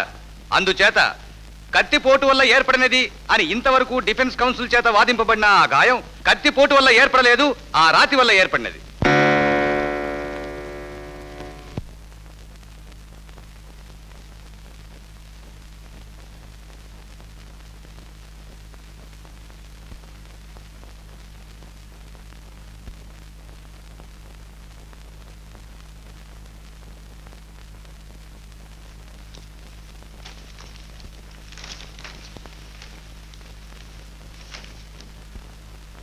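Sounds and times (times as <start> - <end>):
film soundtrack hiss and hum: 0.0 - 36.0
faint clicks: 29.2 - 35.4.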